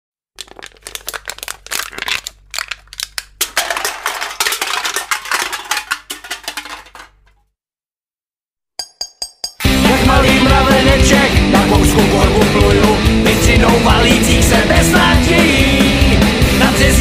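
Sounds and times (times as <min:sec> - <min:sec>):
hard objects clattering: 0:00.4 - 0:07.4.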